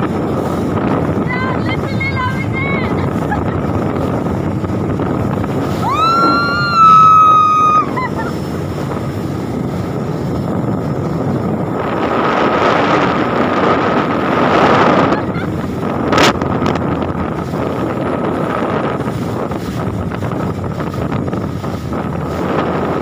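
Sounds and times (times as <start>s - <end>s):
water noise: 0.0s - 23.0s
wind buffeting microphone: 0.0s - 23.0s
woman screaming: 5.8s - 8.3s.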